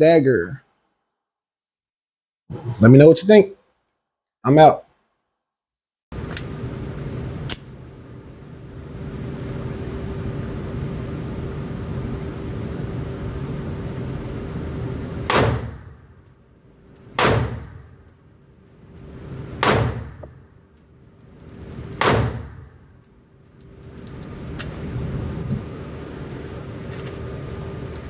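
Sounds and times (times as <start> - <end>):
pistol shots: 15.3 - 15.8, 17.2 - 17.7, 19.6 - 20.2, 22.0 - 22.6.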